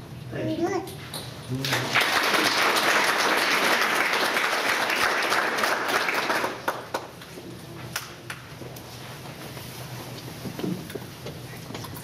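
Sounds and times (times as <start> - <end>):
audience applauding: 1.6 - 7.2.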